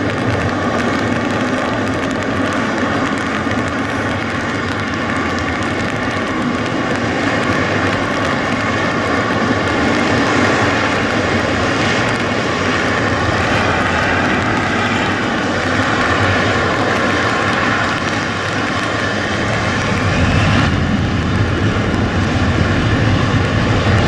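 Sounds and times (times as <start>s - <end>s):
jet engines running: 0.0s - 24.0s.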